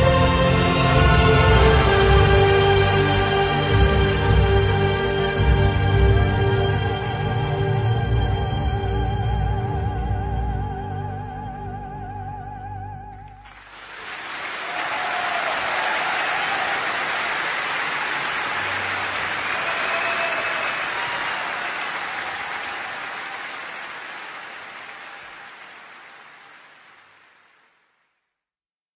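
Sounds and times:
audience applauding: 0.0s - 6.8s, 13.1s - 28.0s
person singing with vibrato: 0.0s - 13.4s
music: 0.0s - 13.6s.

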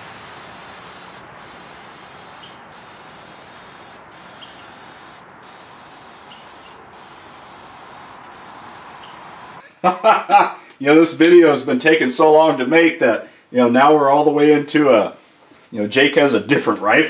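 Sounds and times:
aerosol spray hiss: 0.0s - 9.6s.

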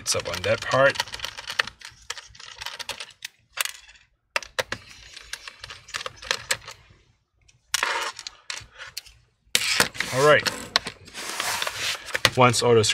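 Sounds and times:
screwdriver clicking and scraping: 7.5s - 12.2s.

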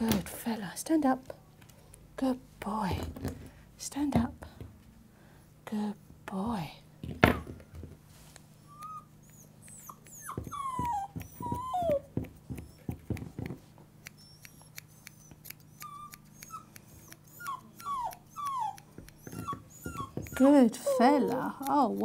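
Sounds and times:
puppy whining: 8.6s - 13.1s, 14.0s - 22.0s
scissors snipping hair: 12.2s - 22.0s.

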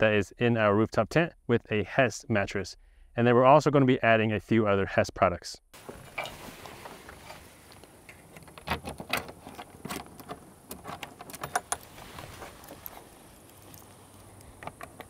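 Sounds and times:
metal latches clicking: 8.0s - 11.9s.

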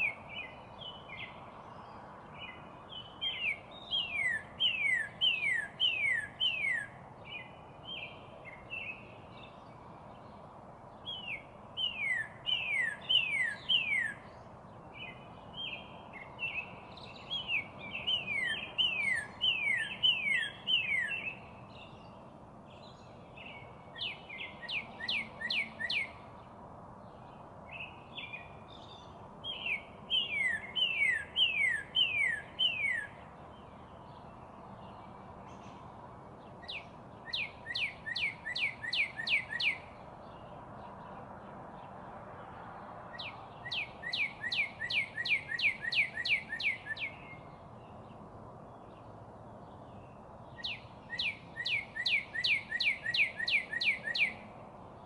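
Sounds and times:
bird singing downslurred whistles: 11.1s - 14.2s, 29.5s - 33.2s, 36.7s - 39.9s, 43.2s - 47.4s, 50.6s - 54.4s.

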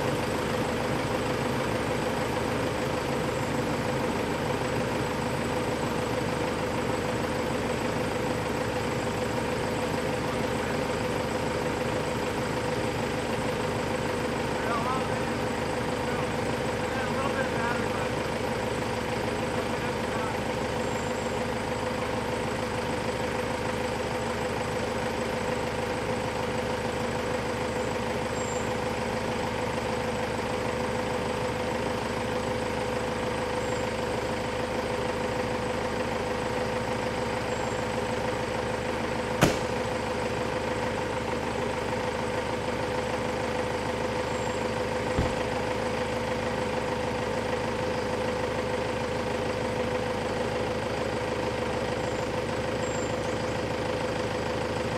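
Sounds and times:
vehicle engine idling: 0.0s - 54.9s
dull thump: 39.4s - 39.8s, 45.1s - 45.5s.

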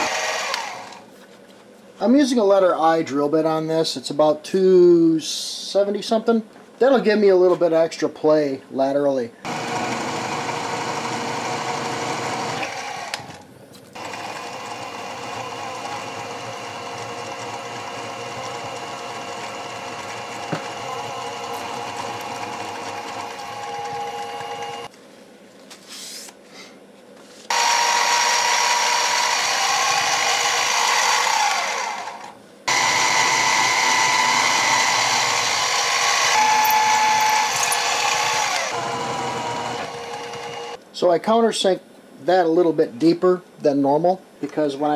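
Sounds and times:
mill spindle whining: 14.0s - 24.9s, 27.5s - 40.8s.

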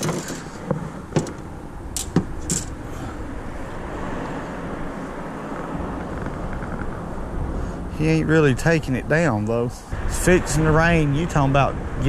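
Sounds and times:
wind noise on microphone: 4.8s - 12.0s.

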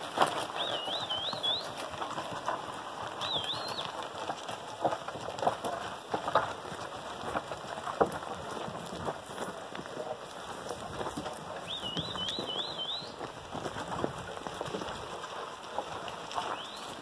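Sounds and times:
hooves knocking on rocky trail: 0.0s - 17.0s.

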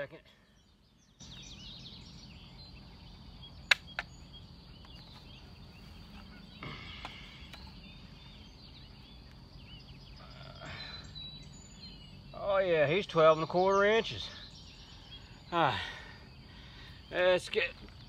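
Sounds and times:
small birds chirping: 0.0s - 18.0s
sharp clicks: 3.7s - 4.2s.

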